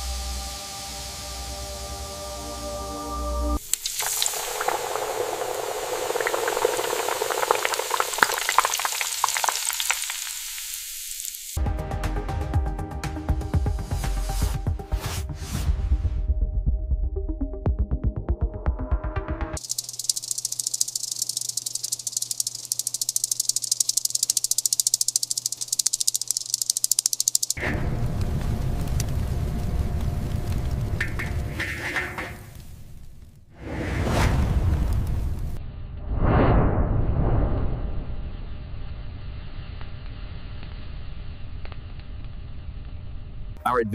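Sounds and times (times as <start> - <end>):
oil sizzling in deep fryer: 3.6 - 11.6, 19.6 - 32.8.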